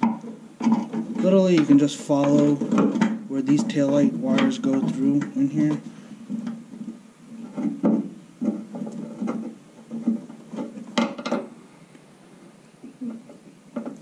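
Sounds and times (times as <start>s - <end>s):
wires rubbing against plastic: 0.6s - 11.0s.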